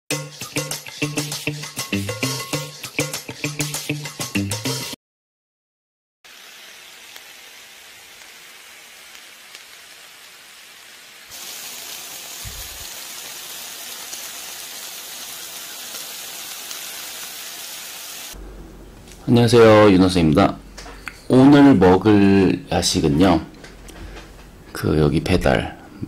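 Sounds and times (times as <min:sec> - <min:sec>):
skewers sizzling on grill pan: 0:06.3 - 0:18.4.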